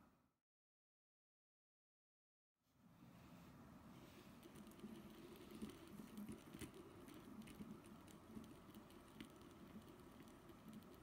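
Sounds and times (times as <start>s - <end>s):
fidget spinner bearings whirring: 4.4s - 11.0s.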